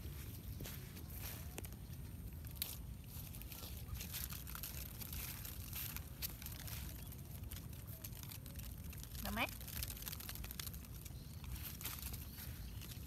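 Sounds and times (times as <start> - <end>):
rustles: 0.0 - 13.0.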